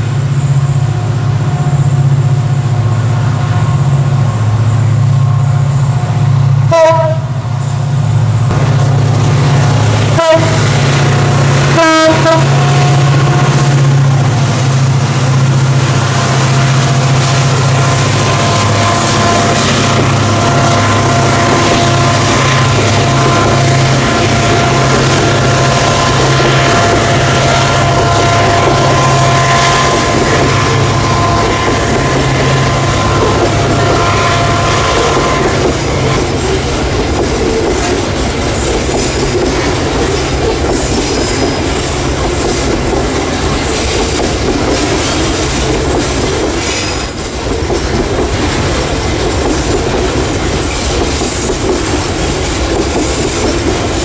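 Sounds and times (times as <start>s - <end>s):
diesel locomotive engine drone: 0.0s - 54.0s
moving train noise: 0.0s - 54.0s
train horn toots: 6.6s - 7.5s, 10.1s - 10.8s, 11.7s - 13.7s, 17.7s - 36.5s.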